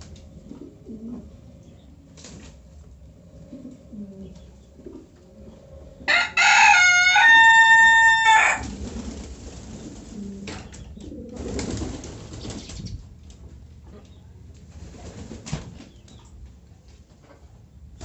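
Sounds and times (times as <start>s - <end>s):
pigeons cooing: 0.0s - 6.8s, 7.6s - 13.0s
rooster crowing: 6.0s - 8.8s.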